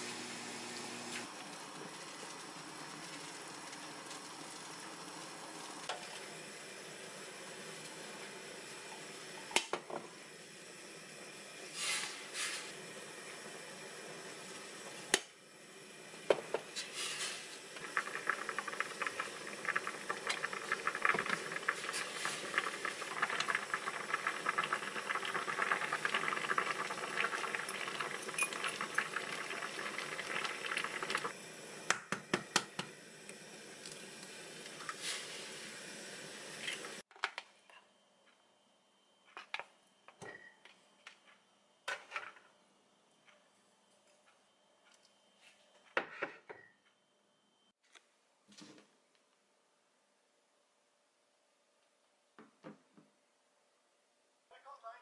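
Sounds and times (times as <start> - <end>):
broth boiling and bubbling: 0.0 - 37.1.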